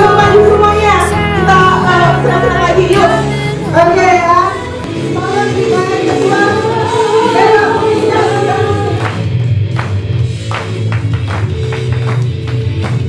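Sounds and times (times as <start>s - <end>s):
person singing: 0.0s - 9.0s
music with bass beat: 6.9s - 13.0s.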